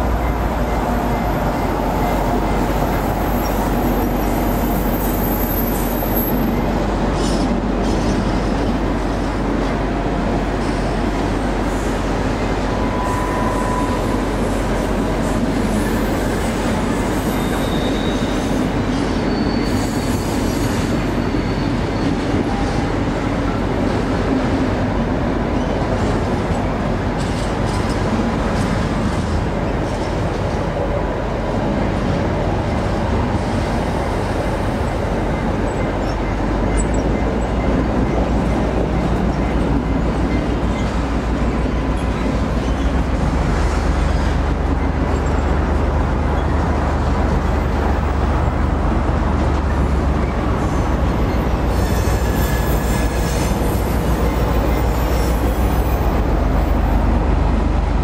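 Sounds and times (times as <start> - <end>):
diesel locomotive rumbling: 0.0 - 58.0.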